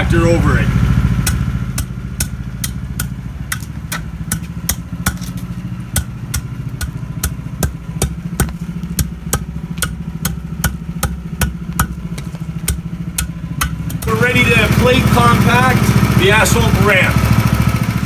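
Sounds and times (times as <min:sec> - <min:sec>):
engine idling: 0:00.0 - 0:18.0
hand tamper tapping asphalt: 0:01.1 - 0:14.8.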